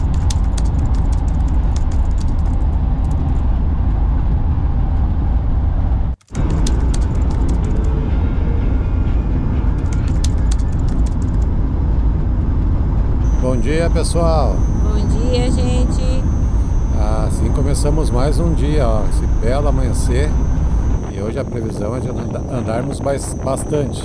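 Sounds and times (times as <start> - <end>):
interior rattles and clicks: 0.0 - 3.5, 9.8 - 11.5
van engine and road noise drone: 0.0 - 24.0.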